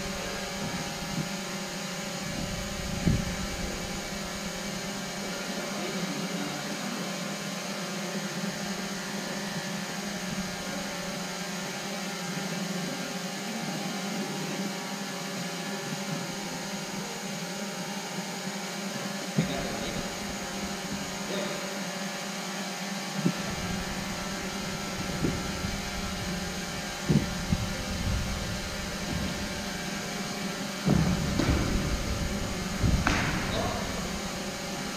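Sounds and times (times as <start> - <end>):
sports hall hiss and hum: 0.0 - 34.9
sharp knocks: 30.8 - 34.3.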